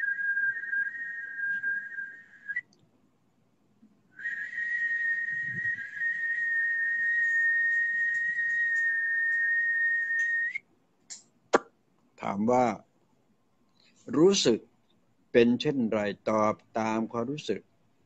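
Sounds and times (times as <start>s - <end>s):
high-pitched whistle-like tone: 0.0s - 2.6s, 4.2s - 10.6s.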